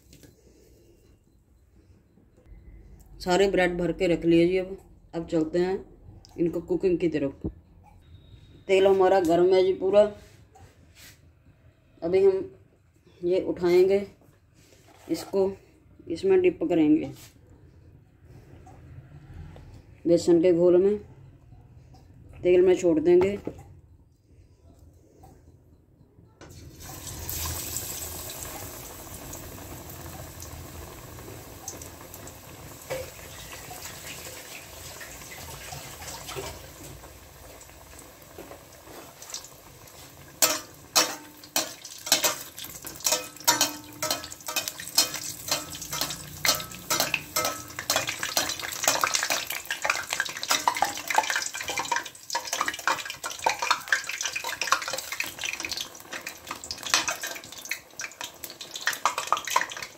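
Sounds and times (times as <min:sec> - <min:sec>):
deep-frying sizzle: 0:26.5 - 0:59.9
oil crackling and popping: 0:26.8 - 0:59.9.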